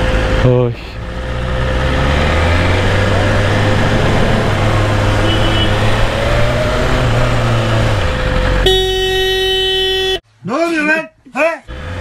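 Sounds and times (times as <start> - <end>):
road and traffic noise: 0.0 - 12.0.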